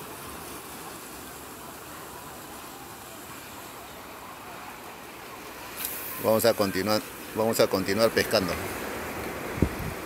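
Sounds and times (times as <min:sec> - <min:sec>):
sea washing against rocks: 0:04.7 - 0:10.0.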